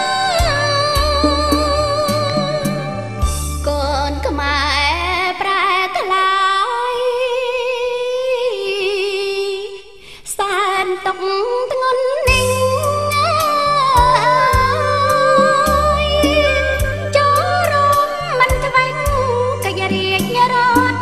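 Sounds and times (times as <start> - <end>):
person singing with vibrato: 0.0 - 21.0.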